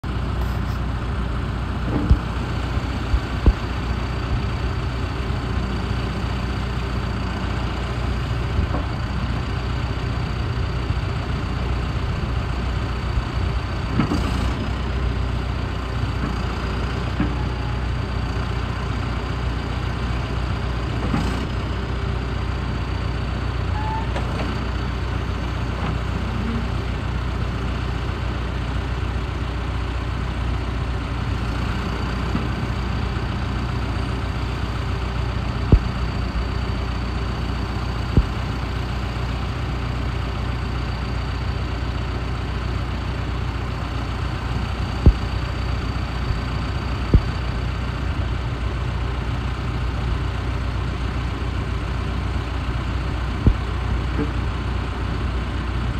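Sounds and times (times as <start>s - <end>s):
diesel engine running: 0.0s - 55.9s
high steady whine: 34.0s - 39.4s, 43.9s - 48.4s, 53.2s - 55.0s.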